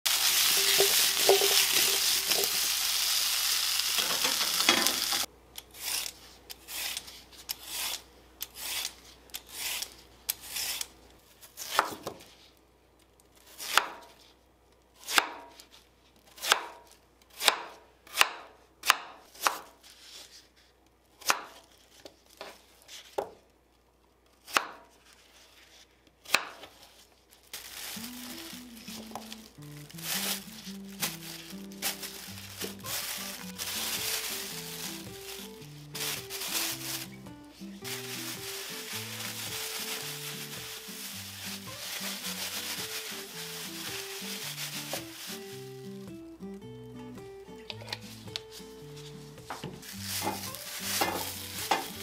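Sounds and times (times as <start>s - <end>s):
food sizzling in a frying pan: 0.1s - 5.3s.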